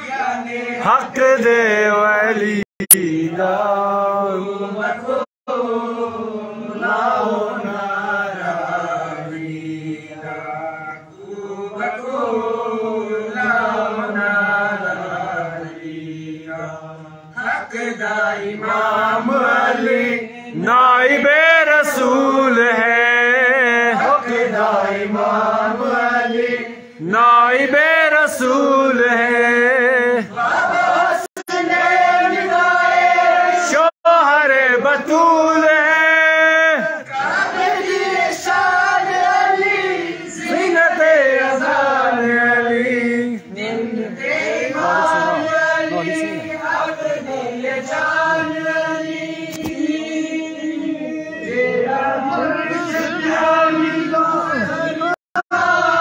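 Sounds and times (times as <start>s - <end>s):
man chanting into microphone: 0.0s - 5.2s, 33.6s - 37.1s, 40.4s - 47.6s.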